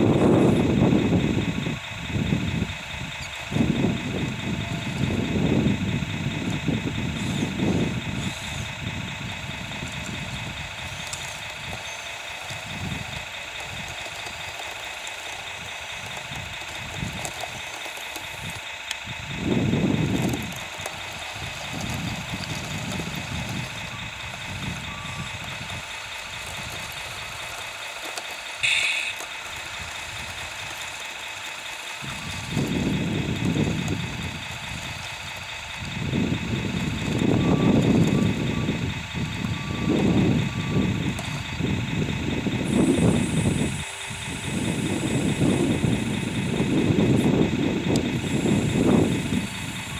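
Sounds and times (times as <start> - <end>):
low rumbles: 0.0 - 49.9
electric motor whine: 3.5 - 8.9, 9.5 - 49.9
high-pitched blip: 28.6 - 29.1.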